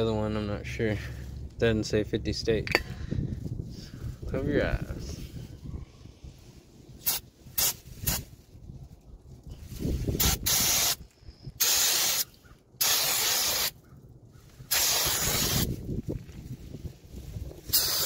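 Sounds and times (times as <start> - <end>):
spray splashing on metal: 7.0 - 8.2, 10.2 - 11.0, 11.6 - 13.8, 14.7 - 15.7, 17.7 - 18.0
aerosol spray hissing: 10.2 - 11.0, 11.6 - 13.7, 14.7 - 15.7, 17.7 - 18.0.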